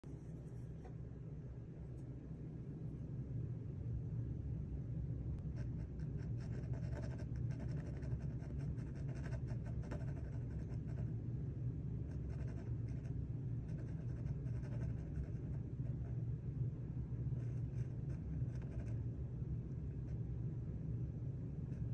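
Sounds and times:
steady low hum: 0.0 - 21.9
pencil scratching on panel: 5.5 - 11.1, 12.1 - 16.2, 17.4 - 19.0.

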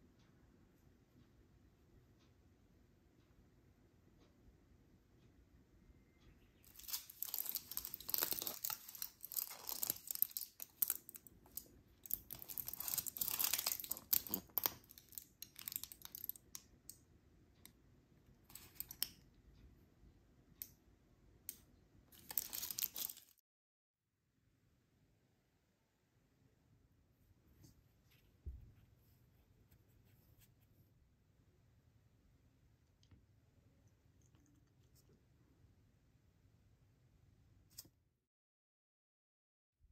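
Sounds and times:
packaging crinkling and tearing: 6.7 - 16.3, 22.2 - 23.4.

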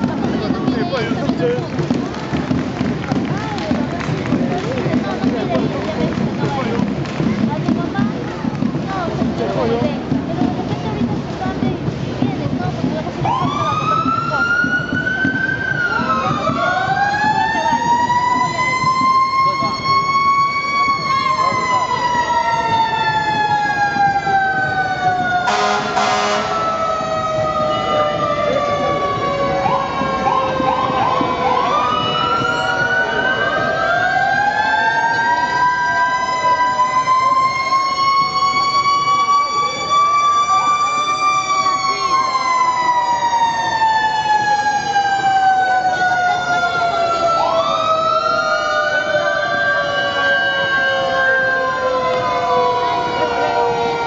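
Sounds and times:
crowd murmur: 0.0 - 54.0
fire engine sirens winding up: 12.8 - 54.0.

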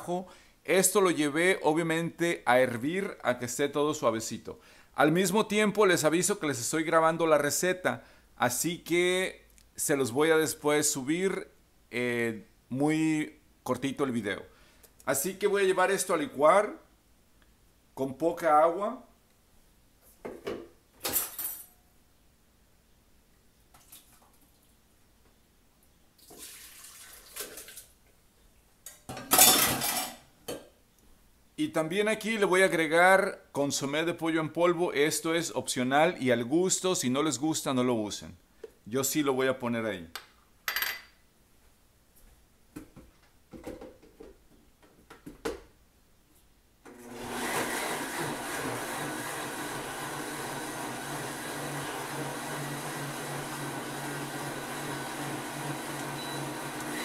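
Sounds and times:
electric blender running: 46.9 - 57.0.

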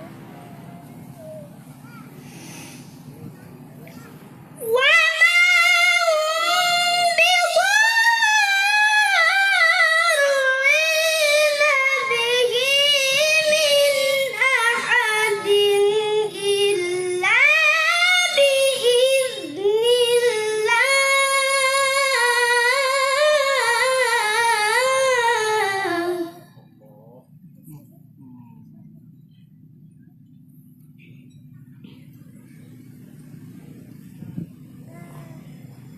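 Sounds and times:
child reciting melodically: 1.0 - 2.5, 3.8 - 26.5.

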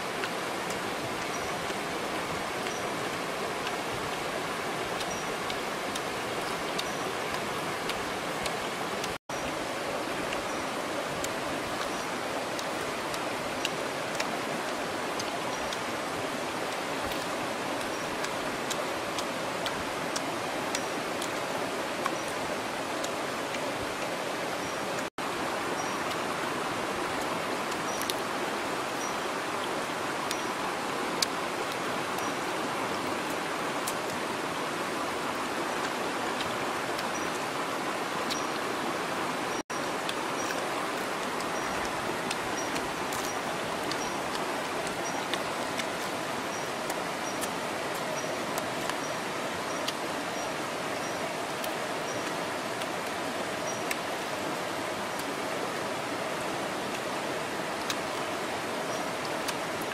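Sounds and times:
stream rushing over stones: 0.0 - 59.9
faint clicks: 11.2 - 15.9, 27.7 - 28.3, 40.0 - 50.0, 57.8 - 58.3.

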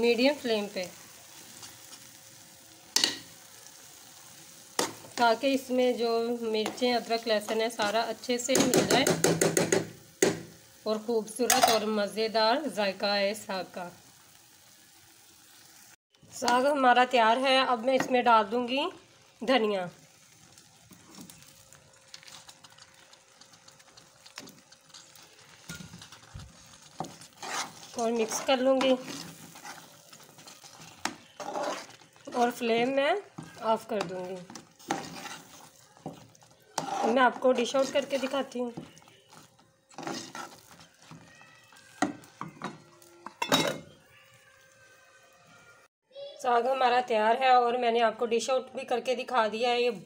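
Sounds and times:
thick stew bubbling and crackling: 0.0 - 11.5, 12.1 - 45.0
metal spoon scraping a steel pot: 27.0 - 32.6, 33.4 - 35.7, 36.7 - 41.2.

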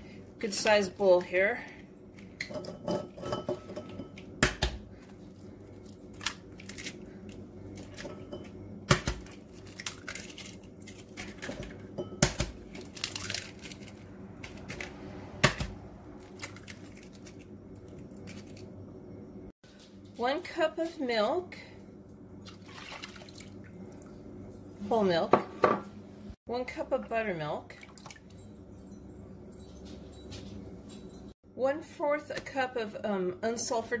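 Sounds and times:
eggs cracking: 8.9 - 11.6.

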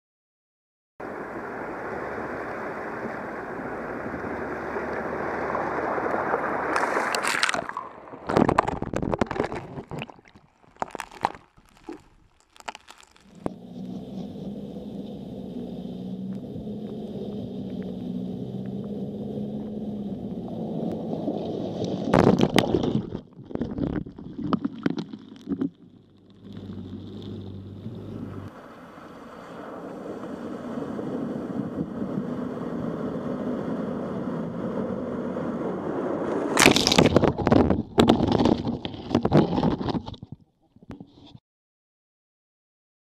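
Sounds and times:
water splashing: 1.0 - 32.1, 36.3 - 40.0
vehicle engines running: 13.3 - 21.7, 26.2 - 29.0.

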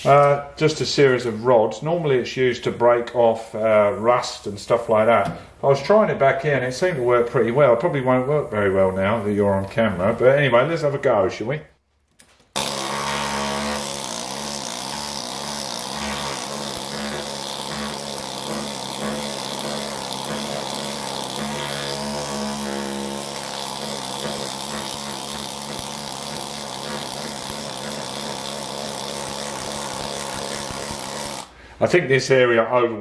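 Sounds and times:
needle scaler hammering: 12.5 - 31.6.

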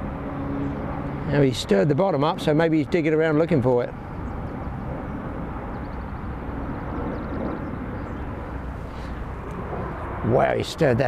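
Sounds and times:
wind on microphone: 3.8 - 11.0.

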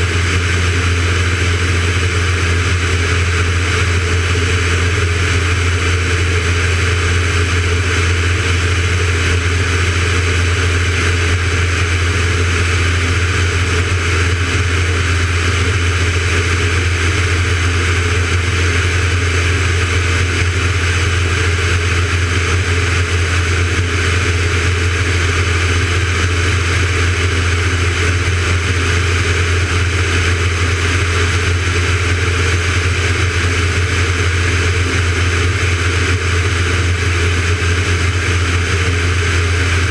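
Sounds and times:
propeller aircraft engine droning: 0.0 - 39.9.

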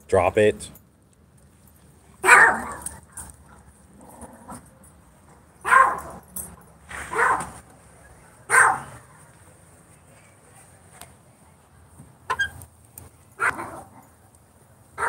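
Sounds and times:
dog barking: 2.2 - 3.0, 5.6 - 6.2, 7.1 - 7.6, 8.5 - 9.2, 13.4 - 13.9.

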